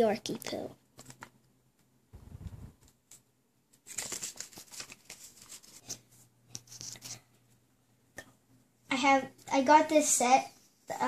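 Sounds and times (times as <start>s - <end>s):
paper card rustling: 1.0s - 1.4s, 3.8s - 7.3s
low dull bump: 2.2s - 2.8s.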